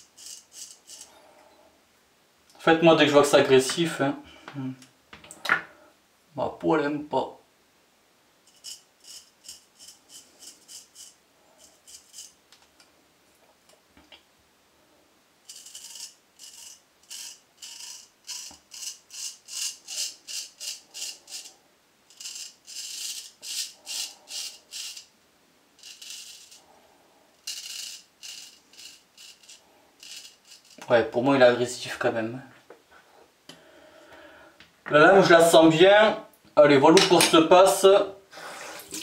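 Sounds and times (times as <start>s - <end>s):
straight razor scraping stubble: 8.5s - 12.4s, 27.5s - 30.9s.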